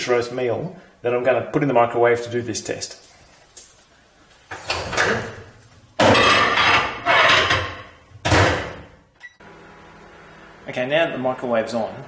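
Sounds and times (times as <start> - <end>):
microwave door banging shut: 7.5 - 8.9.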